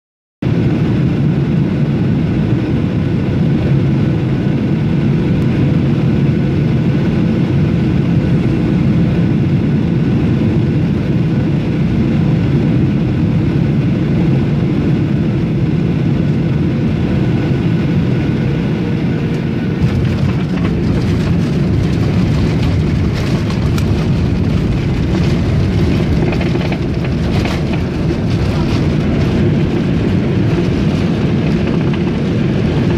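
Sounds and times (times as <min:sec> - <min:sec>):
airliner cabin engine rumble: 0:00.4 - 0:32.9
jet touching down: 0:00.5 - 0:32.9
rattling on runway: 0:19.2 - 0:32.9.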